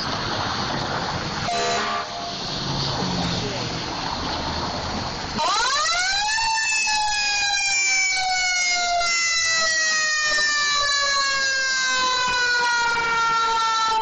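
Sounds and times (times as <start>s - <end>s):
fire engine siren: 1.4s - 3.1s, 5.4s - 14.0s.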